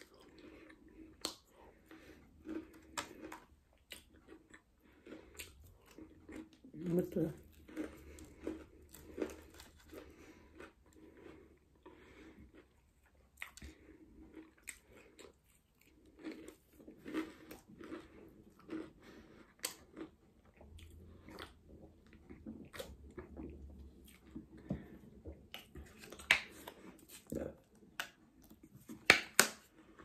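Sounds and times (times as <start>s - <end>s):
crunchy chewing and biting: 0.0s - 24.9s.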